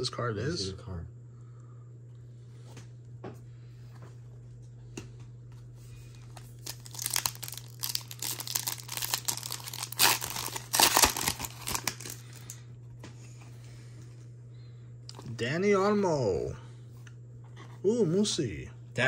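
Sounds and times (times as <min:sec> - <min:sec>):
foil wrapper tearing and crinkling: 0:06.4 - 0:12.6.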